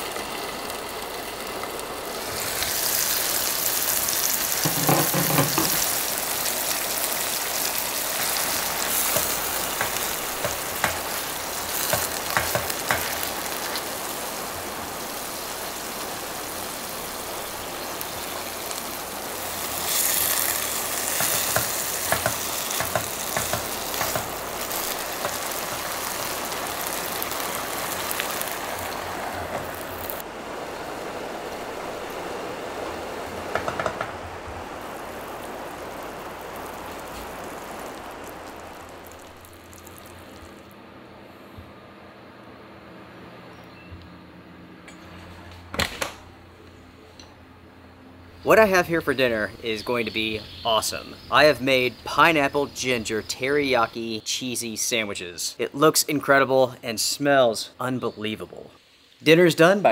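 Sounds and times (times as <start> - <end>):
chicken sizzling in a skillet: 0.0 - 40.7
utensils clicking and scraping pan: 4.6 - 6.0, 19.9 - 26.0.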